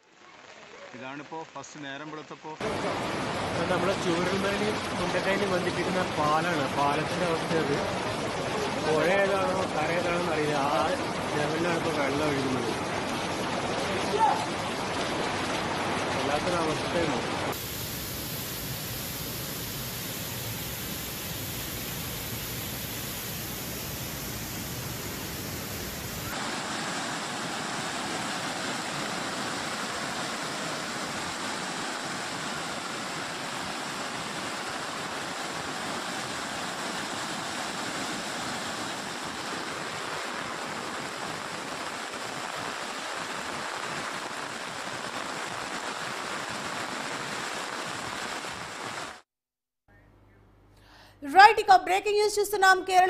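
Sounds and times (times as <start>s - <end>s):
floodwater rushing: 2.6s - 49.2s.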